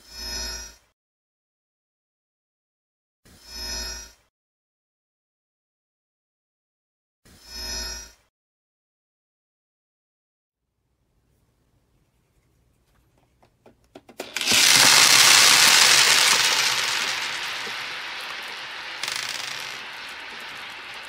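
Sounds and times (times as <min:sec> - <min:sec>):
balls clattering on tabletop: 0:13.7 - 0:21.0.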